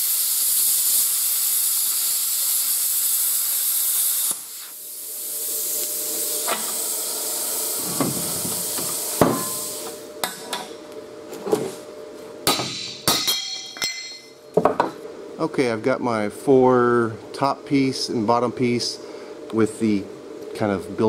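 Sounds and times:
plasma cutter arc: 0:00.0 - 0:10.1
steady air hiss: 0:00.0 - 0:10.1.

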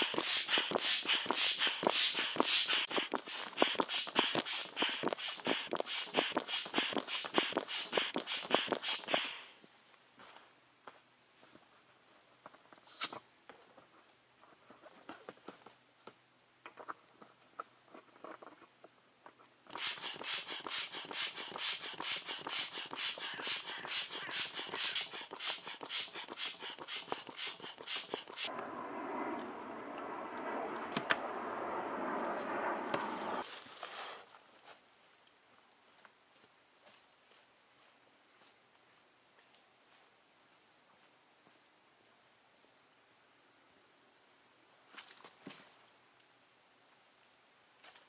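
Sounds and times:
foot pump strokes whooshing: 0:00.0 - 0:09.5, 0:19.7 - 0:33.5.

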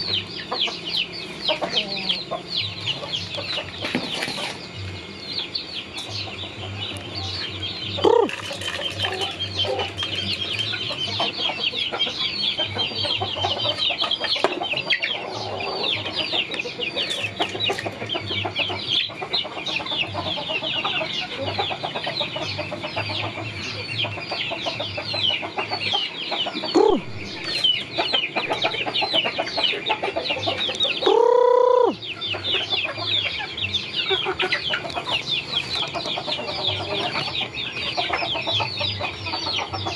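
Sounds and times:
chickens clucking: 0:00.0 - 0:39.9
chicks peeping: 0:00.0 - 0:39.9
drawn-out chicken call: 0:08.0 - 0:10.1, 0:26.4 - 0:33.1.

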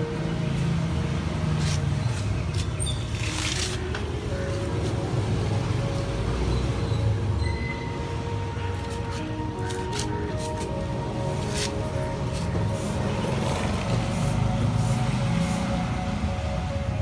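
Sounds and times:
brief rustle: 0:02.5 - 0:04.0.

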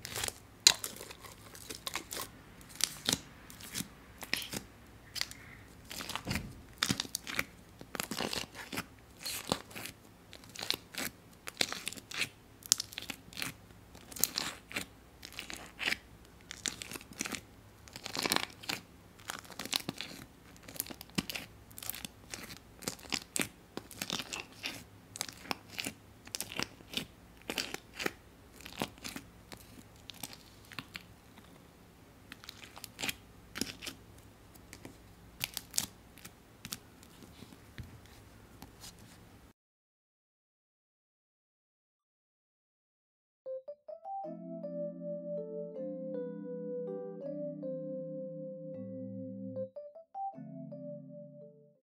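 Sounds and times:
slime crackling and popping: 0:00.0 - 0:31.1, 0:32.3 - 0:34.0, 0:34.6 - 0:36.8.

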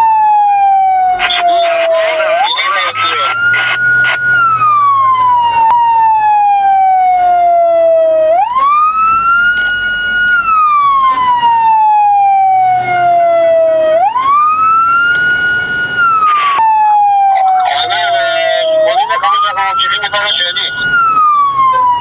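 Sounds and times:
siren wailing: 0:00.0 - 0:22.0.

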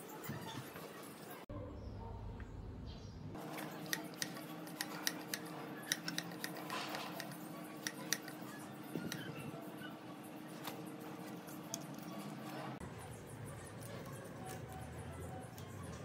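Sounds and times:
metallic clicks of hand pump: 0:03.6 - 0:09.3.

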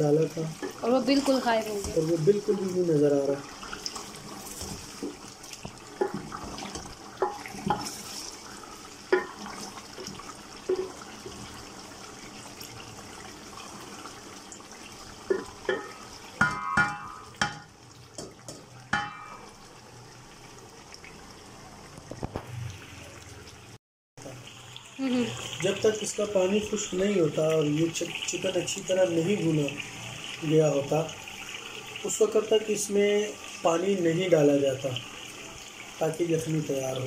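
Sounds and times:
chicken sizzling in oil: 0:00.0 - 0:23.5, 0:24.2 - 0:37.0
wooden spoon knocking against pot: 0:09.1 - 0:09.4, 0:10.7 - 0:11.0, 0:15.3 - 0:19.4.

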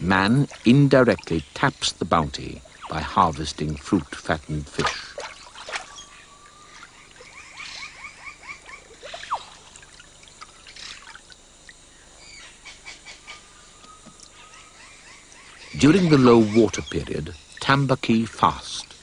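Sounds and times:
water splashing and trickling: 0:00.0 - 0:11.9, 0:15.4 - 0:19.0
birds calling: 0:00.0 - 0:19.0.

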